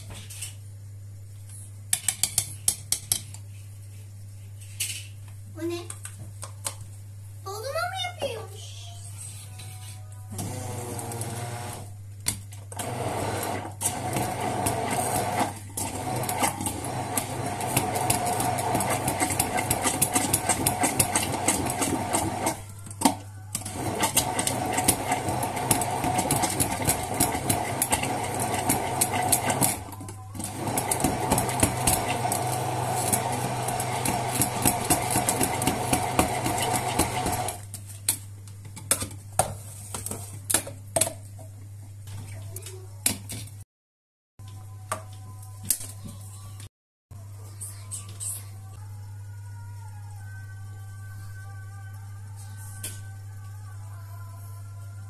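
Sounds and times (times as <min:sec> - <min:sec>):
stick blender running in a jug: 0:10.3 - 0:11.9, 0:12.7 - 0:37.6.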